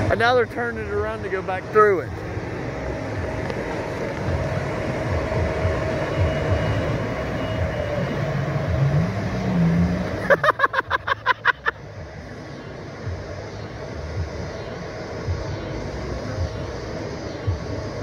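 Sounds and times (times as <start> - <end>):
jet ski engine revving: 0.0 - 11.6.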